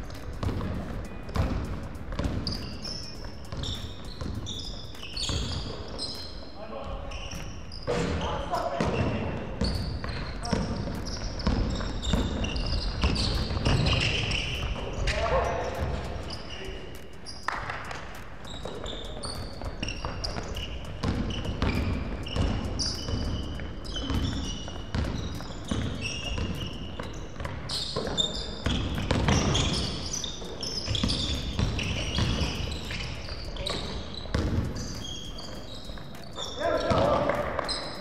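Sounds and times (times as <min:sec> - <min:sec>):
sneaker squeaks: 0:00.0 - 0:38.0
basketball bouncing on hardwood: 0:00.1 - 0:02.7, 0:08.8 - 0:14.9, 0:18.6 - 0:30.0, 0:30.9 - 0:35.5.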